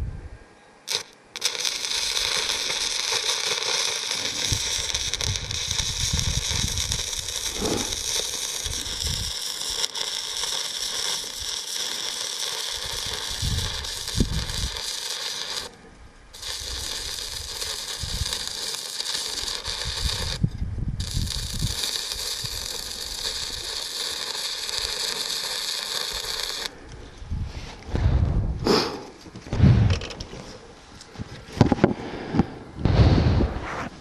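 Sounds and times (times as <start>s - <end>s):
arc welder sizzling and crackling: 0.9s - 26.8s.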